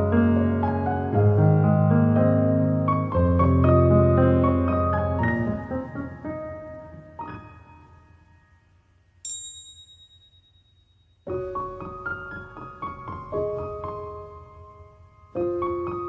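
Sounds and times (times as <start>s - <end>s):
piano music: 0.0s - 8.8s, 11.2s - 16.0s
high chime: 9.2s - 11.3s.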